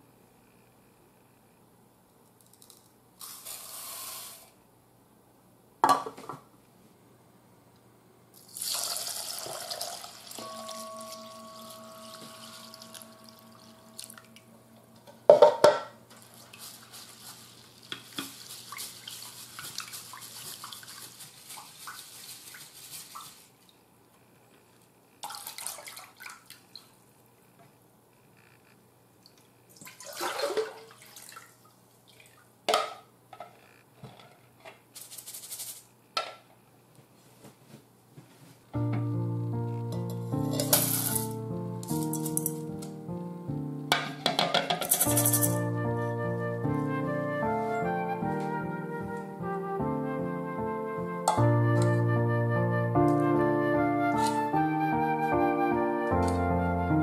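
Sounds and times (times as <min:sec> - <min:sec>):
water poured over rice: 0:08.5 - 0:10.4, 0:16.2 - 0:23.5
strainer knocking against bowl: 0:15.2 - 0:15.9, 0:43.9 - 0:45.6
hands rubbing rice in water: 0:16.2 - 0:23.6.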